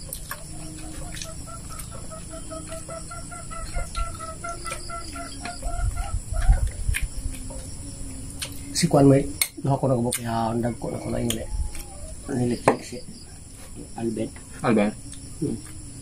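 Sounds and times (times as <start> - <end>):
chicken clucking: 0.0 - 7.8.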